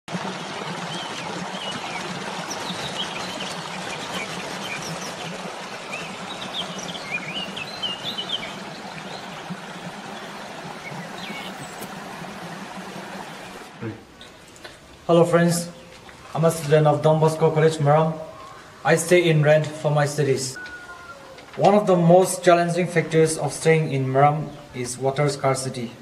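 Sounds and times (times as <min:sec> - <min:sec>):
stream water running over rocks: 0:00.1 - 0:18.0
birds chirping: 0:00.5 - 0:26.0.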